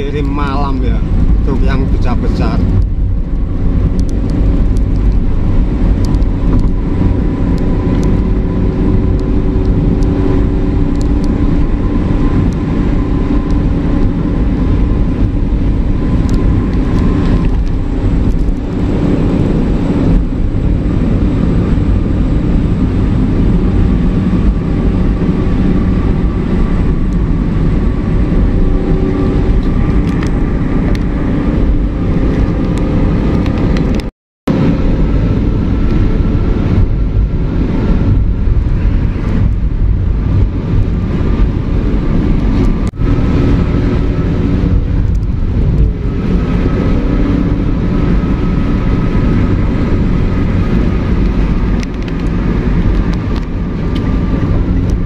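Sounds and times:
tyre and road noise: 0.0 - 55.0.

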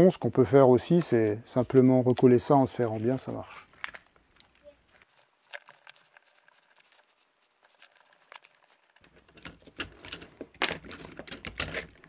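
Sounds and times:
small parts clicking and tapping: 3.7 - 12.0.

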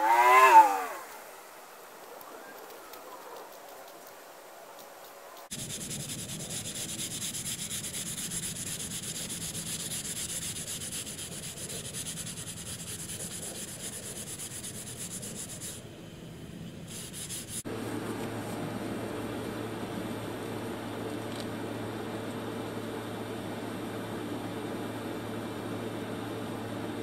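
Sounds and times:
steady low hum: 0.0 - 27.0
sandpaper scratching: 5.5 - 15.8, 16.9 - 17.7.

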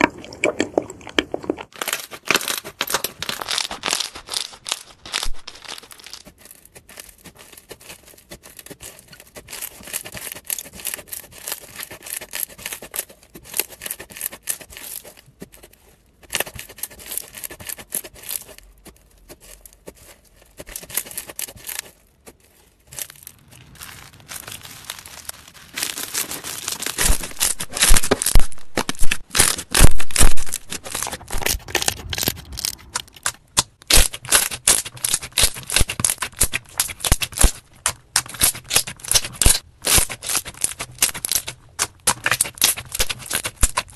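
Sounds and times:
slime popping and squelching: 0.0 - 12.6, 16.3 - 43.9
slime crackling and clicking: 23.0 - 43.9.

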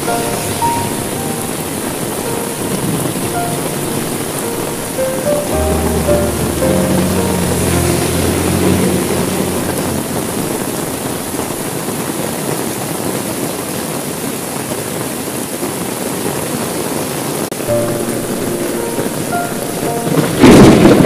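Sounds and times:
thunder rumble: 0.0 - 12.4, 17.7 - 21.0
heavy rain on window glass: 0.0 - 21.0.

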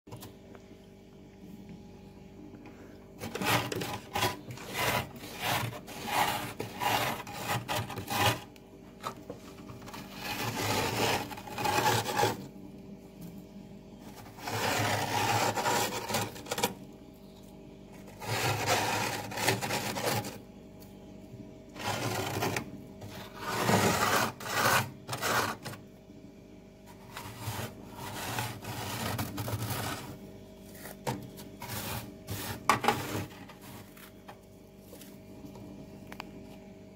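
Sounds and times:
fingers scraping frost: 3.2 - 8.5, 9.8 - 12.5, 14.1 - 16.7, 18.1 - 20.4, 21.8 - 25.8, 26.9 - 34.2.

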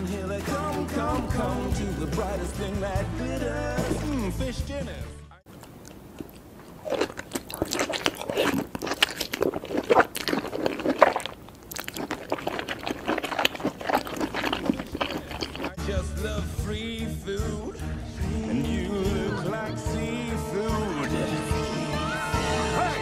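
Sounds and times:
song music: 0.0 - 5.4, 15.8 - 23.0
cartoon wet crunching and chewing: 5.5 - 15.8.

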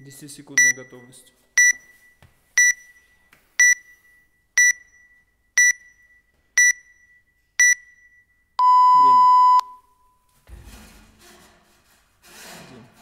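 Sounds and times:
timer high beeps: 0.6 - 9.9.

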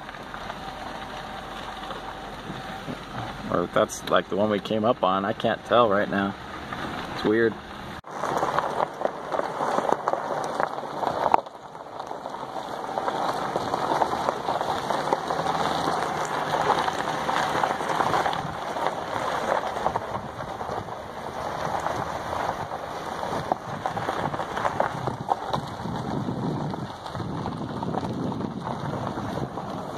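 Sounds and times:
tyres crunching on gravel: 0.0 - 29.9
rushing wind noise: 6.8 - 29.9.

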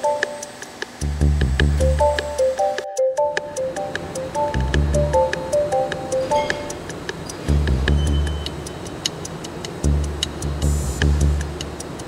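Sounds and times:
music with ticking beat: 0.0 - 12.0
deep bass: 1.0 - 2.4, 4.4 - 5.6, 7.4 - 8.6, 9.8 - 11.8.

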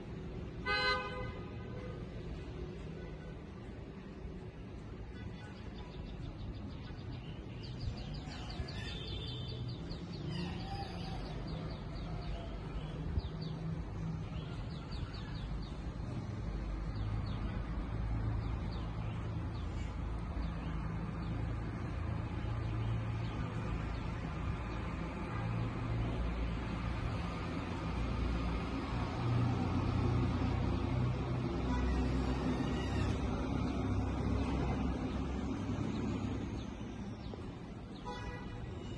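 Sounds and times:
small birds chirping: 4.1 - 28.4.

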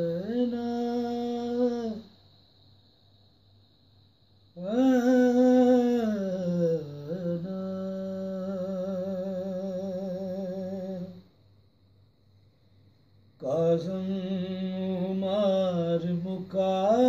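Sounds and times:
man singing unaccompanied lament: 0.0 - 2.1, 4.6 - 11.3, 13.4 - 17.0.

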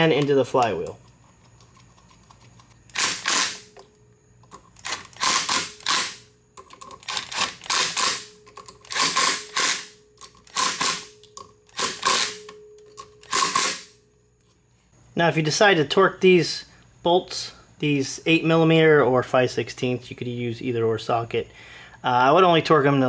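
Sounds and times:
impact driver bursts: 2.9 - 3.7, 4.8 - 6.3, 7.0 - 8.3, 8.9 - 12.4, 13.2 - 14.0.

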